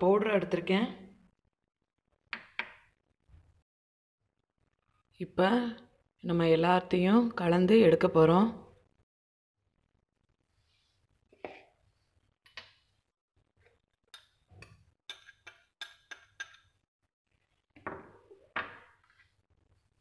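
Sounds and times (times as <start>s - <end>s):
dishes clinking and knocking: 14.2s - 16.8s, 17.8s - 19.0s.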